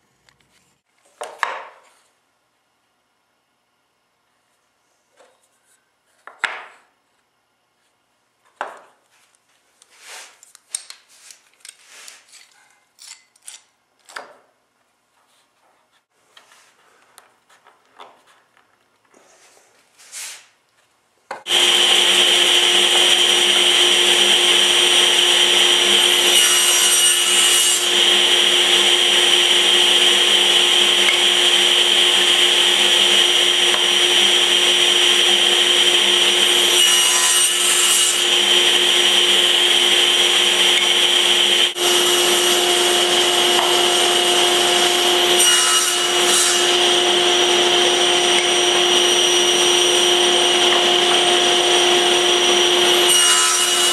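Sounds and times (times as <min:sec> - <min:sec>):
saw blade cutting wood: 0:21.4 - 0:53.9
table saw running: 0:21.5 - 0:53.9.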